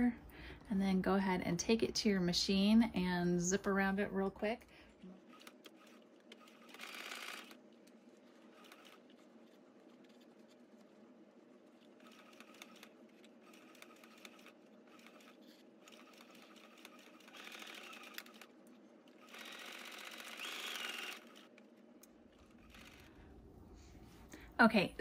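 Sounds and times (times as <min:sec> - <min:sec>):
sewing machine running: 0:05.2 - 0:07.6, 0:08.4 - 0:09.2, 0:11.9 - 0:18.5, 0:19.1 - 0:21.6, 0:22.3 - 0:23.2.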